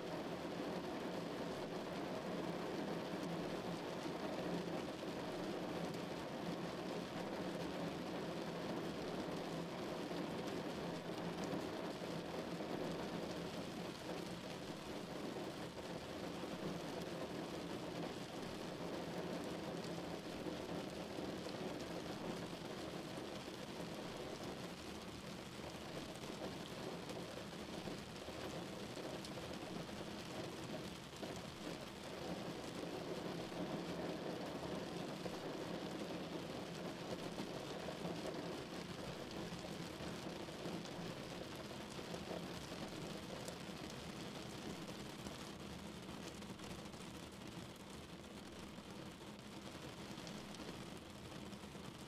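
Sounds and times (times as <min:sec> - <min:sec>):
rain on car windscreen: 0:00.0 - 0:52.0.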